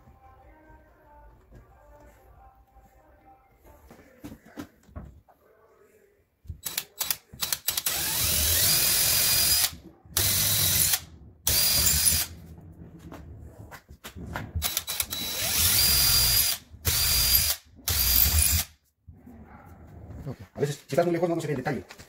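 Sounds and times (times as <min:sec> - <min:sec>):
cordless drill boring wood: 0:06.6 - 0:12.3, 0:14.6 - 0:18.7.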